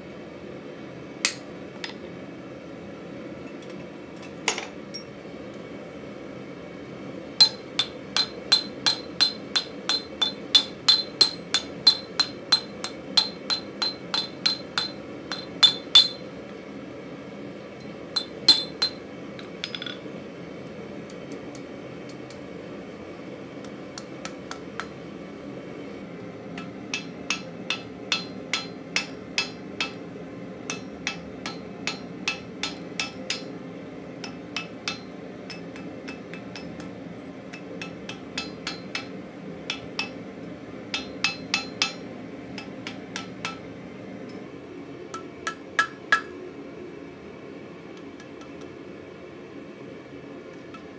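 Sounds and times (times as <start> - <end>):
hammer striking steel on anvil: 7.4 - 16.4, 17.8 - 19.0, 26.6 - 33.6, 34.2 - 40.2, 40.9 - 43.7, 45.2 - 46.4.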